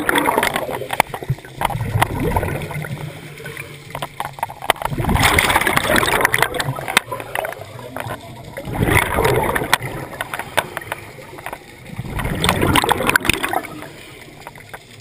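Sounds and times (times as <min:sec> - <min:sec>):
sharp clicks: 0:09.0 - 0:15.0.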